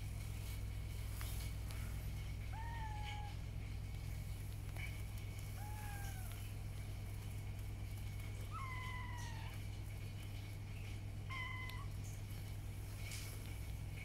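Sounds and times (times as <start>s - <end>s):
steady low hum: 0.0s - 14.0s
kittens mewing: 2.2s - 3.7s, 4.8s - 6.7s, 8.4s - 9.8s, 11.3s - 12.0s.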